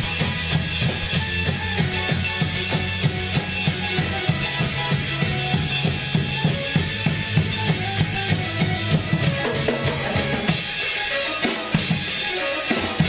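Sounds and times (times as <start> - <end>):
fast drum beat: 0.0 - 13.0.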